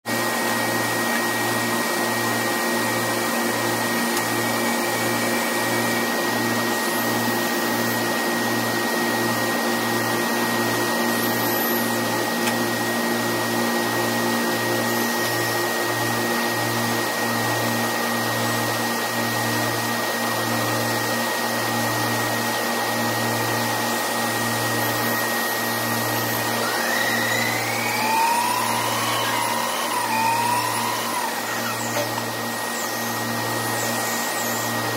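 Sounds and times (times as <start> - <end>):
rising whine: 24.9 - 34.9
constant high tone: 26.6 - 34.7
machinery throbbing noise: 26.6 - 34.7.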